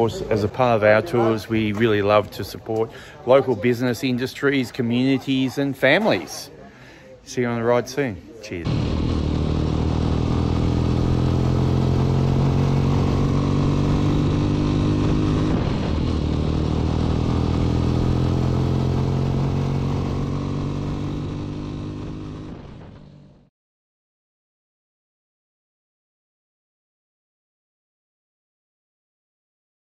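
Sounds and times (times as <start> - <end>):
motorcycle engine cruising: 8.6 - 23.5.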